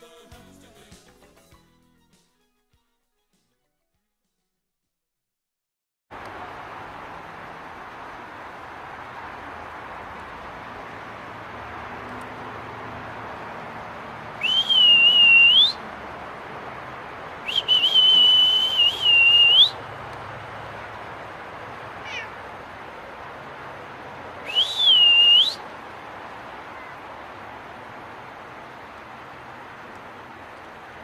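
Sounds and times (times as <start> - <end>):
steady hiss: 6.1 - 31.0
high whistle-like calls: 14.4 - 15.9, 17.4 - 19.8, 24.4 - 25.7.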